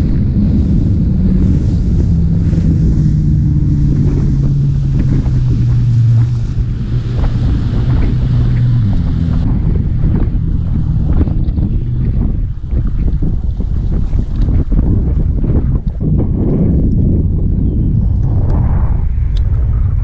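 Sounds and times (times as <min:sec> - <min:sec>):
outboard motor running: 0:00.0 - 0:17.2
wind buffeting microphone: 0:00.0 - 0:20.0
hull slapping on water: 0:00.1 - 0:15.9.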